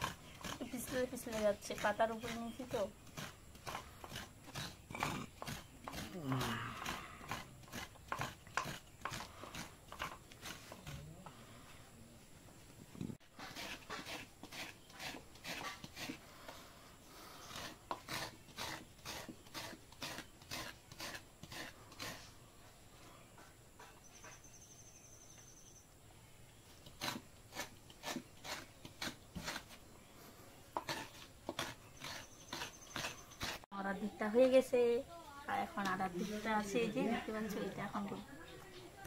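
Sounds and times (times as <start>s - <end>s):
coconut scraper rasping: 0.0s - 11.3s, 13.2s - 22.3s, 26.8s - 29.8s, 30.7s - 33.7s.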